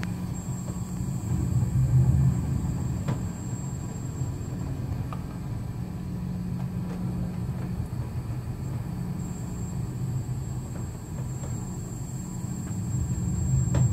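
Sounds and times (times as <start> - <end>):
strong wind buffeting microphone: 12.8 - 13.9.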